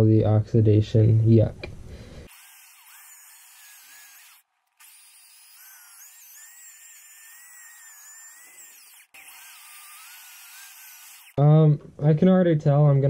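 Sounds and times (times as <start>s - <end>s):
power drill sanding metal: 2.3s - 11.4s.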